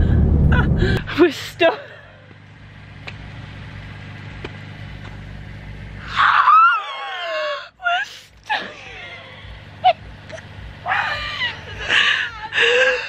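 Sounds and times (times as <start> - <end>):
vehicle engine humming: 0.0 - 13.0
woman shrieking: 6.0 - 9.3, 10.8 - 13.0.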